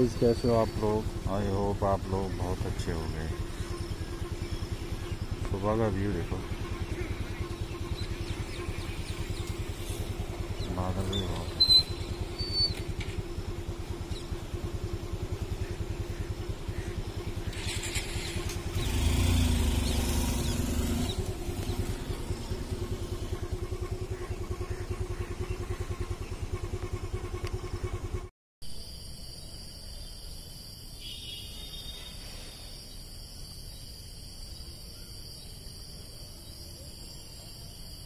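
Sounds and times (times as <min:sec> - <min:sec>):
small engine running: 0:00.0 - 0:28.3
crickets chirping: 0:00.0 - 0:38.0.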